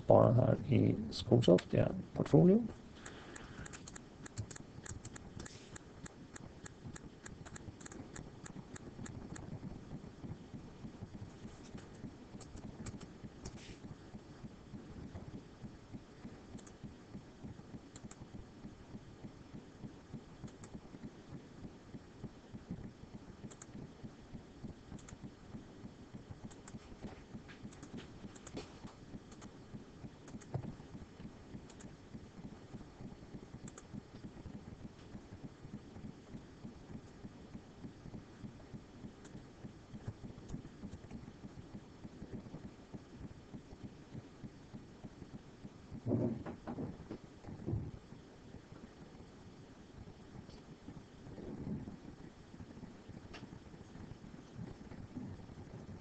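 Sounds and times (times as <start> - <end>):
low steady hum: 0.0 - 56.0
computer mouse clicks: 3.0 - 9.5, 11.8 - 13.6, 16.5 - 16.8, 17.9 - 18.3, 20.4 - 20.8, 23.4 - 23.8, 24.9 - 25.2, 26.4 - 26.8, 27.6 - 28.6, 29.3 - 29.5, 30.2 - 30.6, 31.6 - 31.9, 33.6 - 33.9.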